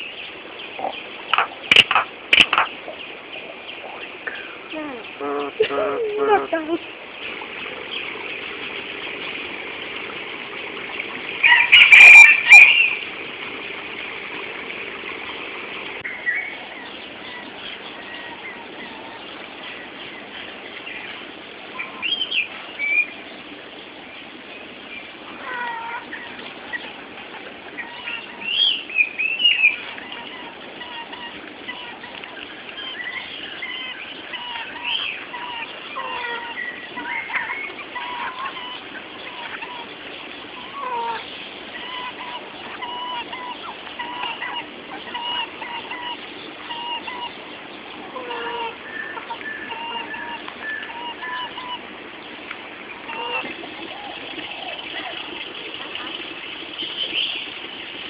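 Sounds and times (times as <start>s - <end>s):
chickens clucking: 0.0s - 58.0s
steady hiss: 51.8s - 58.0s.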